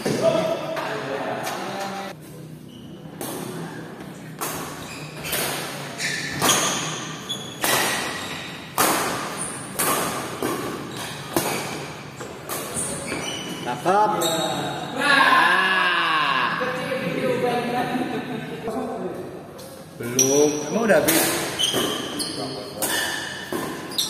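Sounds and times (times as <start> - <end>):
rackets hitting shuttlecock: 4.3 - 13.2, 21.0 - 22.2, 22.8 - 24.0.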